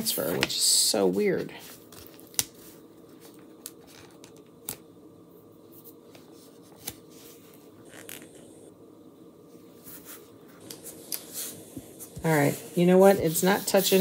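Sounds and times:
faint room hum: 0:00.0 - 0:14.0.

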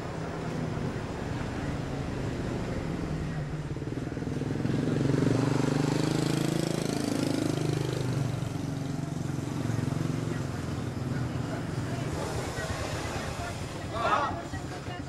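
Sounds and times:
motorcycle engine passing by: 0:02.6 - 0:14.2.

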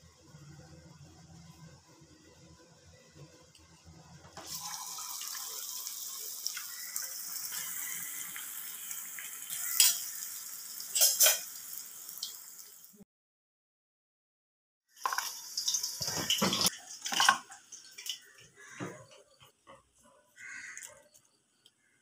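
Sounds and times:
food deep-frying in oil: 0:04.4 - 0:13.0, 0:14.9 - 0:18.7.

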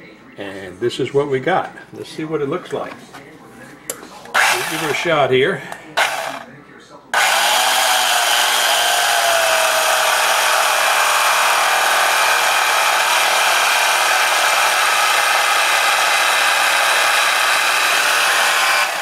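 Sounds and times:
electric carving knife sawing: 0:04.4 - 0:05.2, 0:06.0 - 0:06.4, 0:07.2 - 0:19.0.

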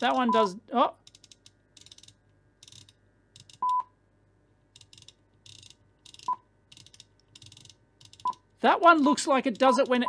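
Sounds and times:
rotary encoder clicking: 0:01.0 - 0:03.7, 0:04.7 - 0:08.4.

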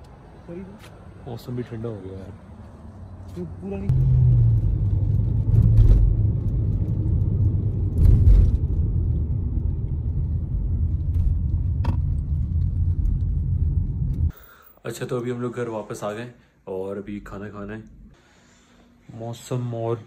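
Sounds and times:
engine and tyre rumble: 0:00.0 - 0:14.4.

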